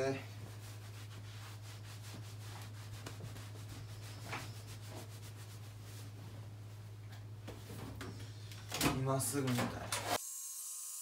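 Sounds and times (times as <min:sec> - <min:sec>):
low steady hum: 0:00.0 - 0:10.1
towel rubbing hair: 0:00.3 - 0:06.7.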